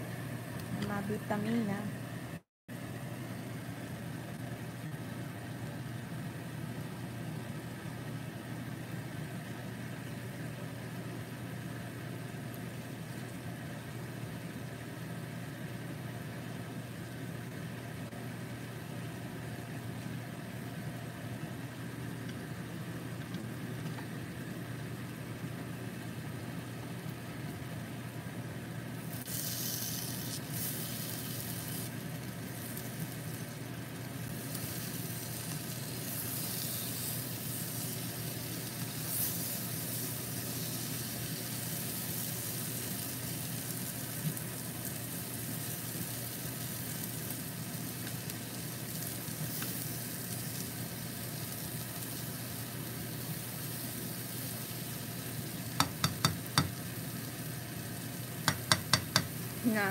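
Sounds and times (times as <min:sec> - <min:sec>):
steady low hum: 0:00.0 - 0:59.9
food sizzling in a pan: 0:28.8 - 0:59.9.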